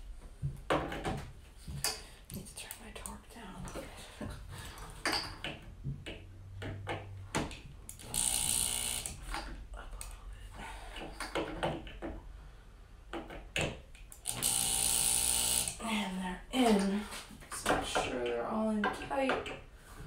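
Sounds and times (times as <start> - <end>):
power drill into wood: 8.0 - 9.2, 14.2 - 15.8.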